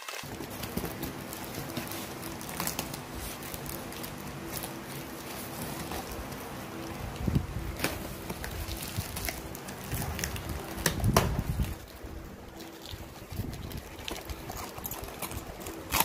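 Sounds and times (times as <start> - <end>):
scissors cutting cardboard: 0.0 - 6.5
cardboard and foam handling: 0.0 - 16.0
faint hum: 0.2 - 16.0
sharp crackling knocks: 7.8 - 11.8.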